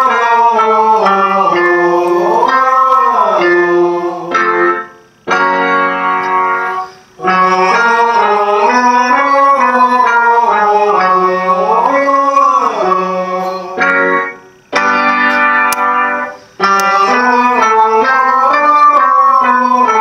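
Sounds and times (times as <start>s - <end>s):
choir singing: 0.0s - 4.9s, 7.2s - 14.3s, 16.6s - 20.0s.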